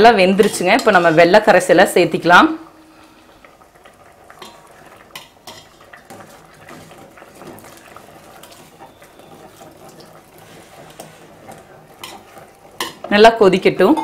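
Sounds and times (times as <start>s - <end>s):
ladle scraping metal pot: 4.3s - 13.2s.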